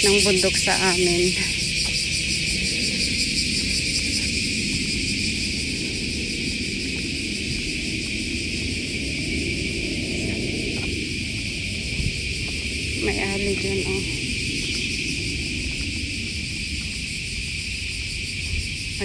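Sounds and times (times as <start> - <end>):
cicadas calling: 0.0 - 19.0.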